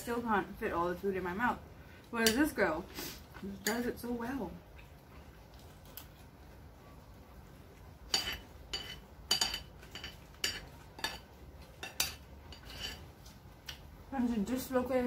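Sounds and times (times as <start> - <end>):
cutlery clinking against a dish: 8.1 - 13.8.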